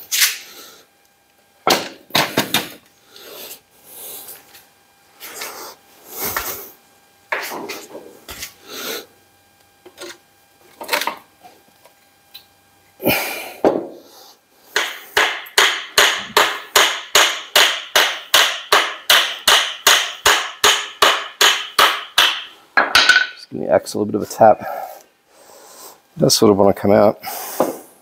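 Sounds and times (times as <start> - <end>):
hammer tapping on metal: 14.8 - 23.3.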